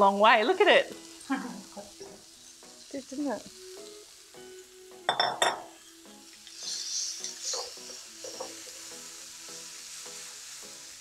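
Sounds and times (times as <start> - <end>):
soft background music: 0.0 - 11.0
vegetables sizzling in a frying pan: 0.0 - 11.0
spatula scraping a pan: 6.4 - 8.9.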